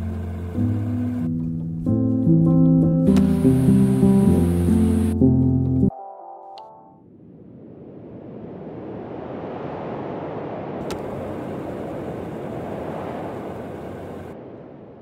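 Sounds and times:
short click: 0:03.1 - 0:03.4
rushing wind: 0:07.0 - 0:15.0.

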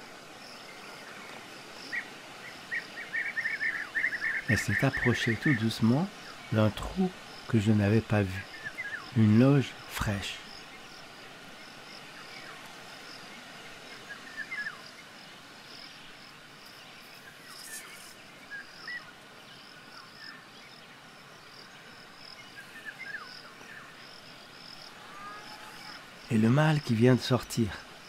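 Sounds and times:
cricket chirping: 0:00.0 - 0:28.0
faint short bird calls: 0:24.8 - 0:26.1.

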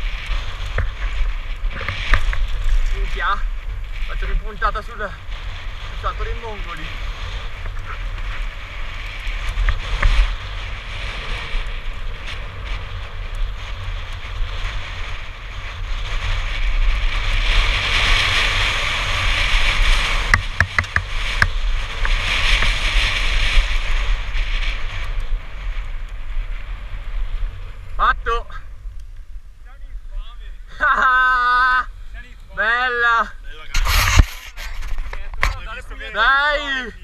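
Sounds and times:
bike rattling: 0:00.0 - 0:37.0
bike tyre noise: 0:00.0 - 0:37.0
wind rushing over microphone: 0:00.0 - 0:37.0
sharp knocks of bike over bumps: 0:09.3 - 0:15.1, 0:17.0 - 0:23.9.

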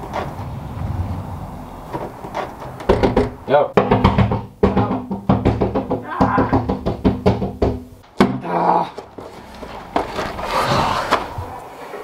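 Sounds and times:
breathy noise: 0:00.0 - 0:02.9, 0:08.4 - 0:12.0
music with quick drum beat: 0:03.8 - 0:06.0.

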